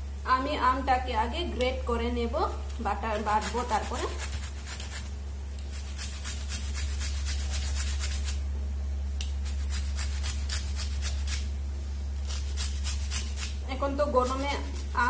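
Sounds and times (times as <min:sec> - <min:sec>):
steady low hum: 0:00.0 - 0:15.0
mango grated on metal grater: 0:03.2 - 0:08.4, 0:09.2 - 0:11.5, 0:12.2 - 0:15.0.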